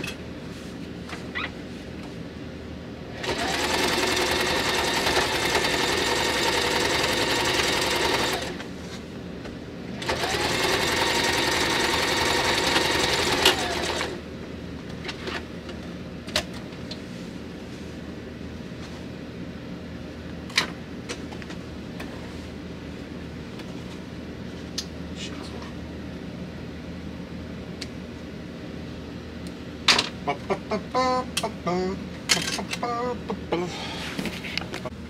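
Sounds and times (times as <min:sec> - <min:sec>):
sewing machine stitching: 0:03.2 - 0:08.6, 0:10.0 - 0:14.2.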